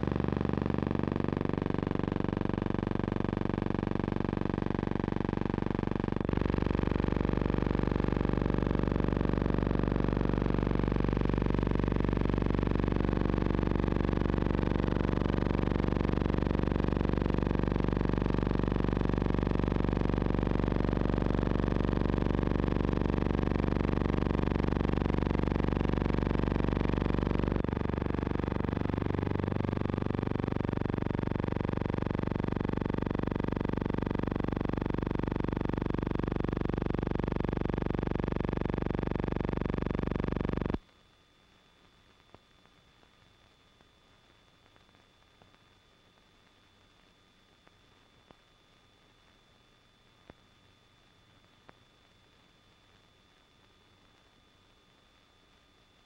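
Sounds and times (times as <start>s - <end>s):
buzzing mechanical drone: 0.0s - 40.8s.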